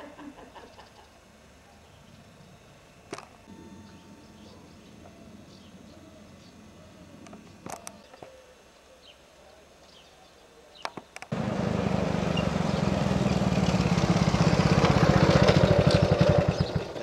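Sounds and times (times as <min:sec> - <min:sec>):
small motorcycle engine putter: 0:14.8 - 0:17.0.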